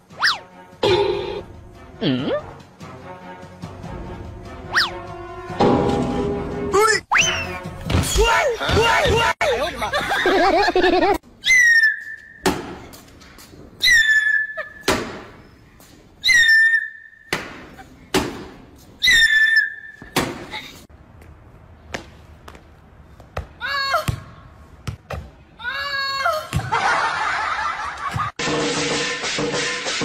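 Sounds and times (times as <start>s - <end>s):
squeaky toy squeak: 0.2s - 0.4s, 4.7s - 5.0s.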